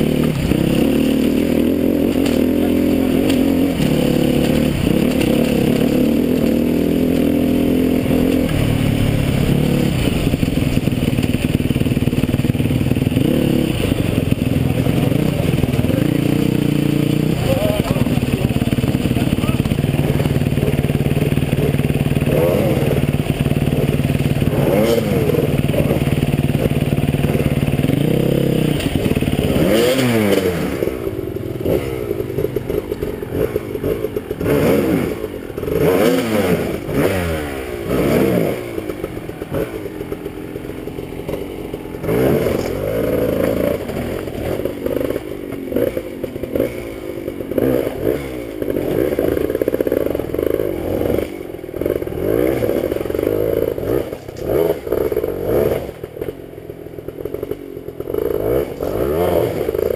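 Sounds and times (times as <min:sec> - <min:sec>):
motorcycle engine idling: 0:00.0 - 0:59.9
motorcycle engine revving: 0:00.0 - 0:59.9
tyres scraping on stones: 0:00.2 - 0:12.0, 0:40.9 - 0:46.7.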